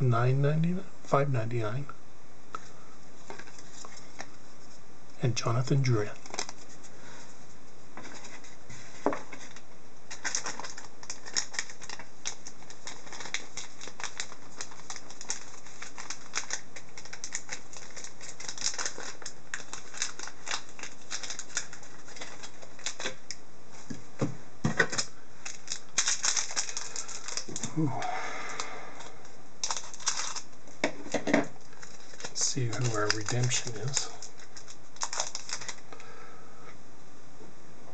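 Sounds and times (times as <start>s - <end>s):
foil wrapper crinkling: 5.9s - 7.2s, 8.0s - 23.4s, 24.8s - 27.9s, 29.6s - 35.9s.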